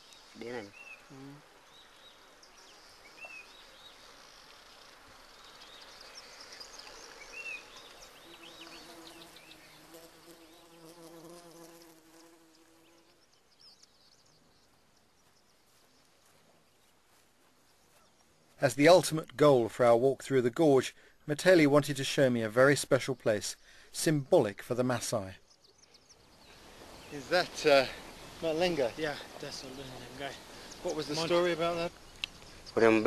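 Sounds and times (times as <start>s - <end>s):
flying insect buzzing: 2.9s - 13.4s.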